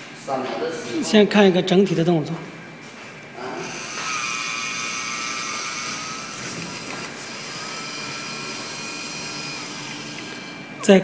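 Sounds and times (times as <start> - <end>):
motor whining: 3.6 - 10.8.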